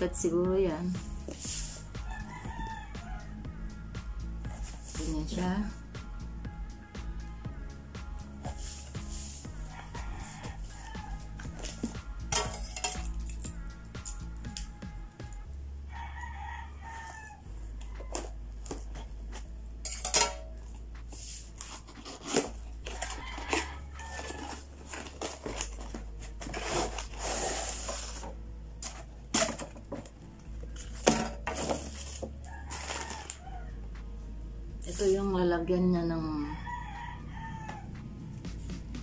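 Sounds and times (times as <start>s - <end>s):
bag pulled out of box: 24.0s - 28.3s.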